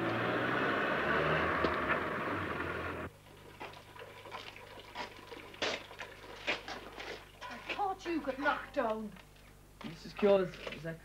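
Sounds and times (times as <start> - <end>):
car engine humming: 0.0 - 3.1.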